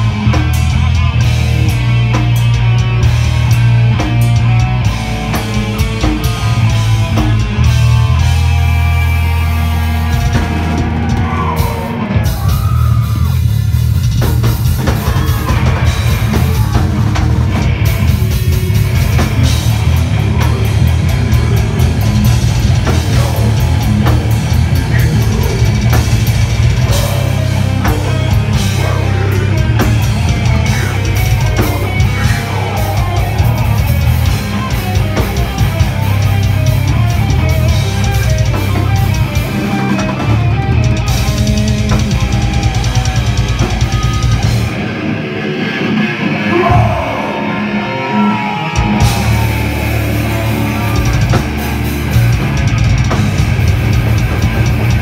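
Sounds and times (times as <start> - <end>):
fast drumming: 0.0 - 44.9, 48.8 - 55.0
bass guitar: 0.0 - 55.0
distorted electric guitars: 0.0 - 55.0
vocalist shouting: 24.8 - 25.9, 26.8 - 34.3, 46.4 - 51.0.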